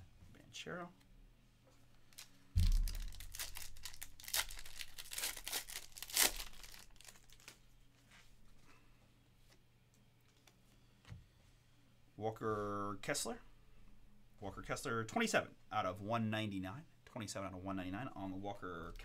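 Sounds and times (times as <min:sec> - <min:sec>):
wrapper being torn and crinkled: 0:02.1 - 0:07.6.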